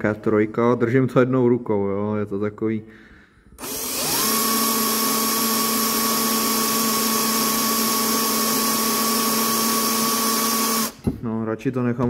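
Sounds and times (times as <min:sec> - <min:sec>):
electric drill whining: 0:03.6 - 0:11.1.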